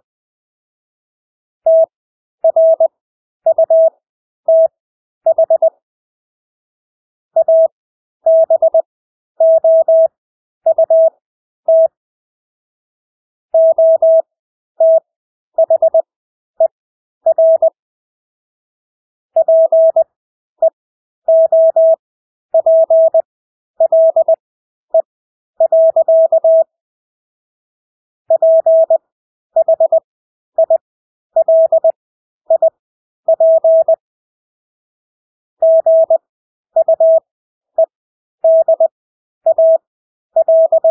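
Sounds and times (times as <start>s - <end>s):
morse code tone: 31.4s - 31.9s, 38.5s - 38.9s, 40.4s - 40.9s.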